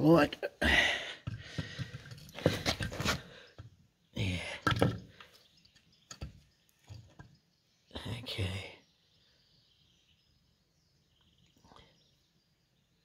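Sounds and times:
tools knocking and clunking: 1.2s - 3.8s, 4.6s - 7.4s.

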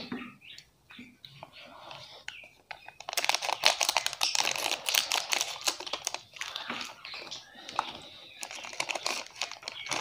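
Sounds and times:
plastic wrapper crinkling: 2.3s - 10.0s.

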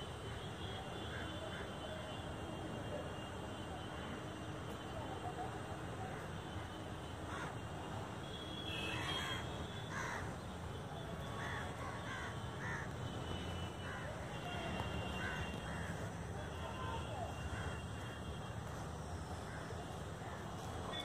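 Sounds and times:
crows cawing: 7.3s - 7.6s, 8.9s - 10.4s, 11.4s - 13.0s, 13.8s - 14.2s, 15.0s - 16.0s.

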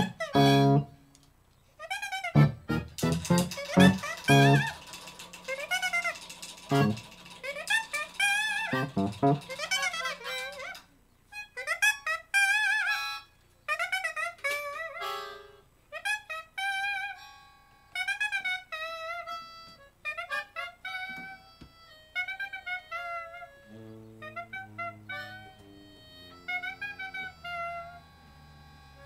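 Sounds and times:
electric piano chords: 0.0s - 0.9s, 2.4s - 4.8s, 8.7s - 9.5s
wind instrument melody: 0.0s - 1.1s, 1.8s - 29.0s.

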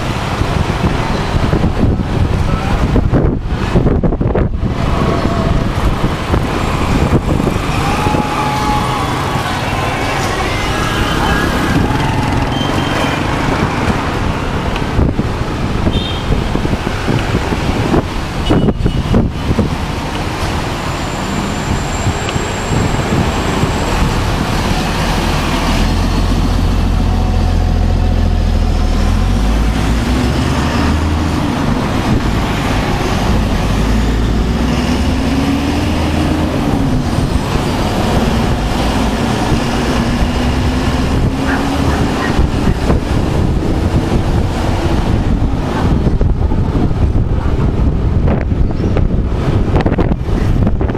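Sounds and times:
wind noise on microphone: 0.0s - 50.9s.

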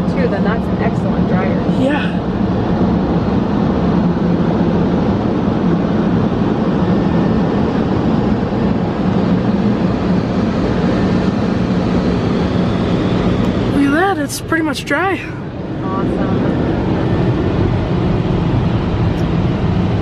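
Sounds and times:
car wash blower dryer rushing air: 0.0s - 20.0s.

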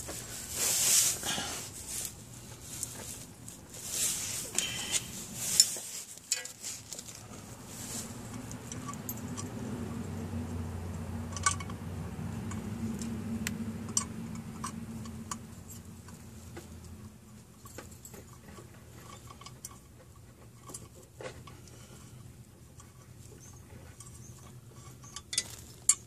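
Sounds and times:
metal clinking and scraping: 0.0s - 9.6s, 13.9s - 26.0s.

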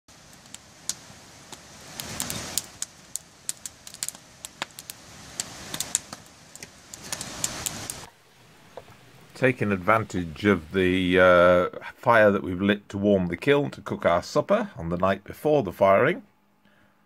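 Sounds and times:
wood fire crackling and popping: 0.1s - 8.1s
rush of flame: 0.1s - 10.8s.

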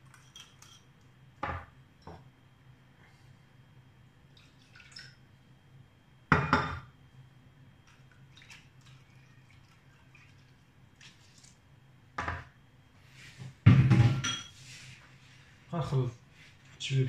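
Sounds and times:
knock on counter: 13.6s - 14.2s.

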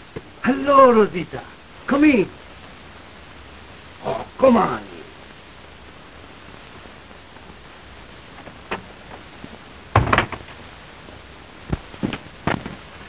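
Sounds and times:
steady background hiss: 0.0s - 13.0s
wooden door thudding shut: 9.9s - 10.5s.

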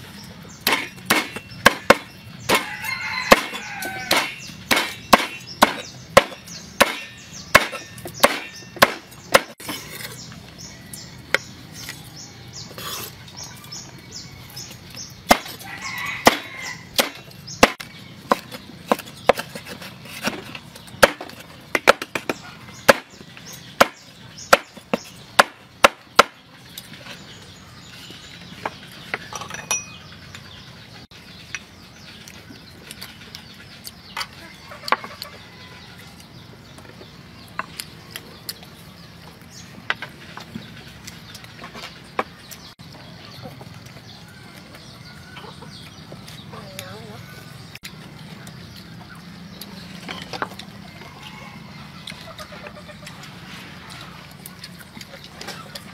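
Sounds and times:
cleaver chopping on wooden board: 0.6s - 9.6s, 15.3s - 15.6s, 16.2s - 23.2s, 23.8s - 26.4s.

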